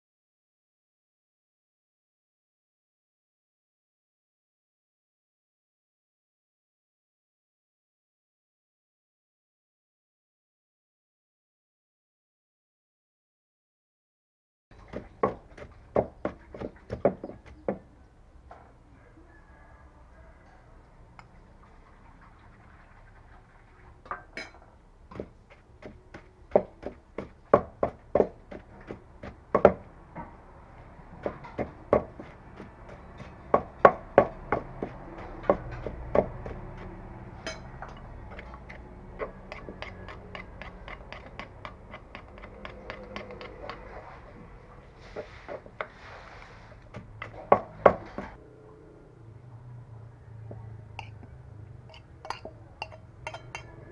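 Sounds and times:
wooden pestle pounding in mortar: 14.9 - 17.9, 25.1 - 29.9, 31.1 - 43.9, 46.9 - 48.4.

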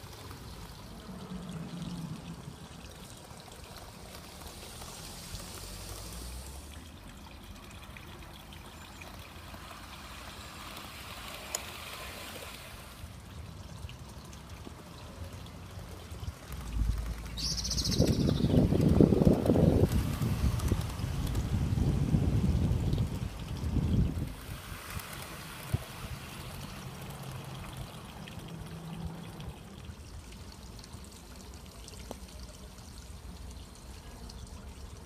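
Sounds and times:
model train wheels hissing on rail: 4.2 - 6.7.

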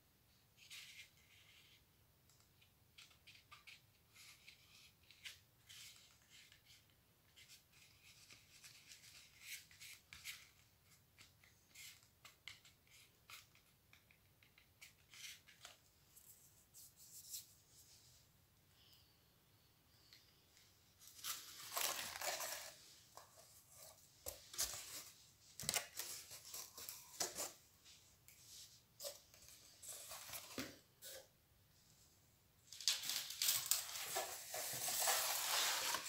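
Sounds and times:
paper rustling and scratching: 21.0 - 27.6, 28.7 - 31.2, 32.7 - 36.0.

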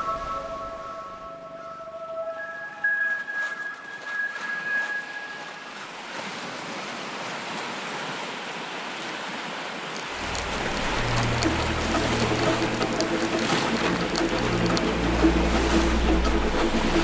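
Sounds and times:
sea waves washing on shore: 0.0 - 17.0
held musical tone: 10.2 - 17.0
low deep drone: 10.2 - 17.0.

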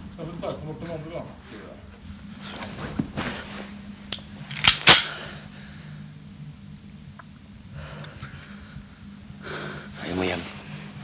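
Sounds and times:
steady low hum: 0.0 - 11.0
prop pistol cracks: 4.1 - 5.2.

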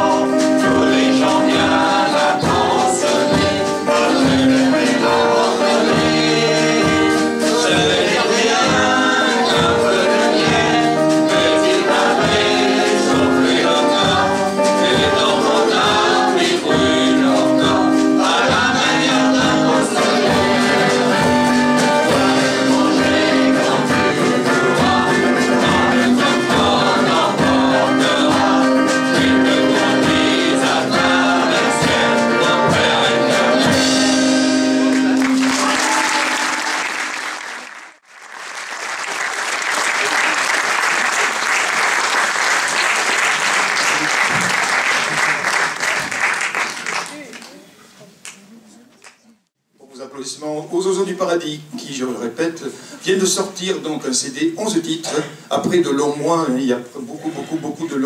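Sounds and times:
group singing: 0.0 - 37.3
drums: 0.0 - 37.4, 39.8 - 46.7
acoustic guitar: 0.0 - 38.1
audience applause: 34.8 - 47.6.

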